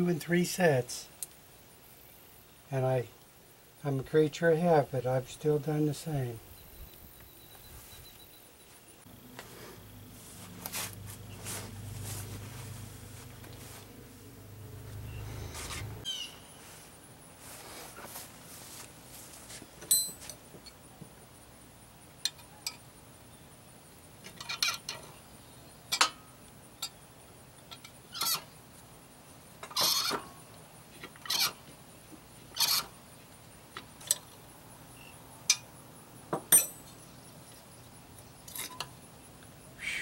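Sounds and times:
wrench clinking on bolts: 19.8s - 20.4s, 36.5s - 37.0s.

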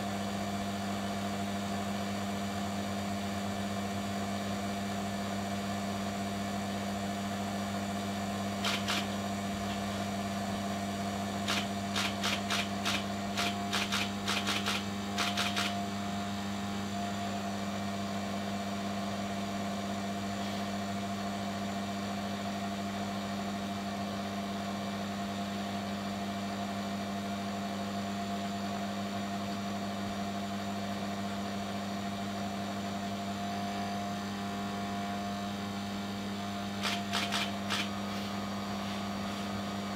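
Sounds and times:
electric motor humming: 8.6s - 9.2s, 11.4s - 15.8s, 36.8s - 38.3s
sharp clicks: 8.6s - 9.2s, 11.4s - 15.8s, 36.8s - 37.9s.

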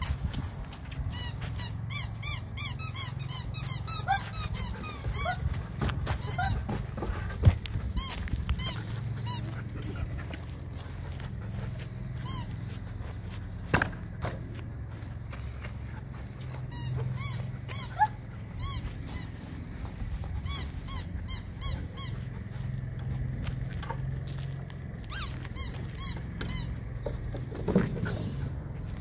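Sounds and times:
dog whining: 1.2s - 7.2s, 16.8s - 19.3s.

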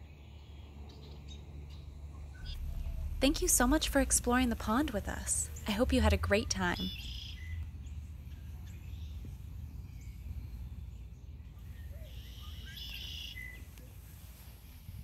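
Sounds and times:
birdsong: 0.0s - 15.0s
steady low rumble: 0.0s - 15.0s
bird chirps: 6.5s - 14.0s.

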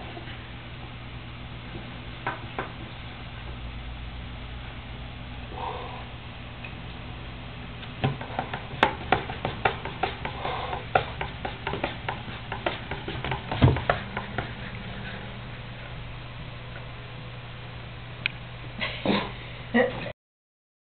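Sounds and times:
cat paws tapping cardboard: 8.0s - 14.6s
heavier knock on cardboard: 8.0s - 14.6s.

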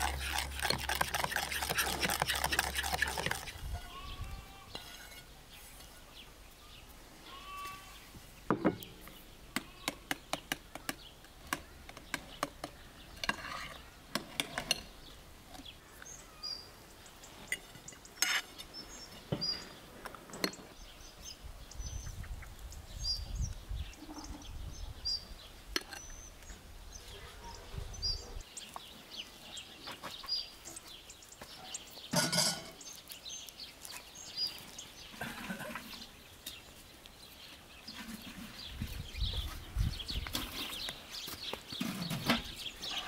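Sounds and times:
small birds chirping: 0.0s - 43.0s
utensils clinking against dishes: 32.1s - 32.8s.

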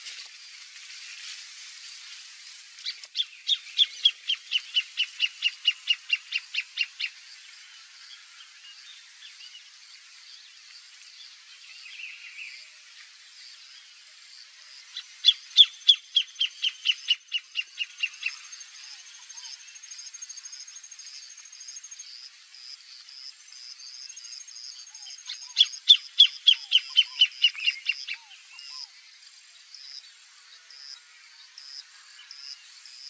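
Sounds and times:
bird singing rapid notes: 15.1s - 18.6s, 25.0s - 28.8s.

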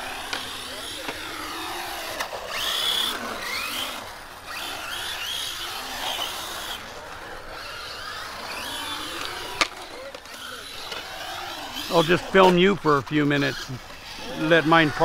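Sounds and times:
radio-controlled car motor whine: 0.0s - 15.0s.

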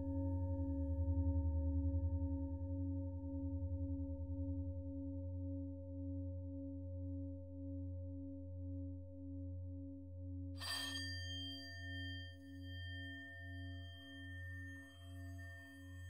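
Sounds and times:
higher bell ringing: 10.6s - 16.0s
singing bowl drone: 10.6s - 16.0s.

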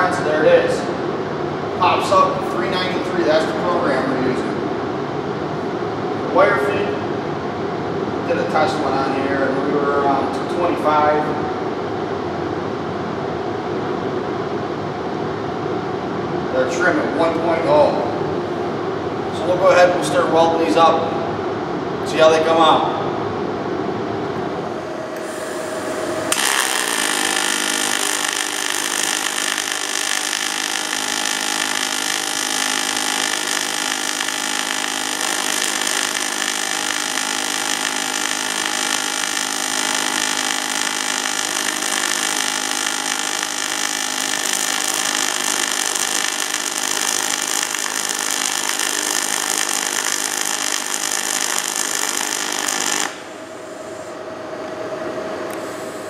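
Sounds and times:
welding arc hissing and humming: 24.8s - 54.2s, 55.5s - 56.0s.

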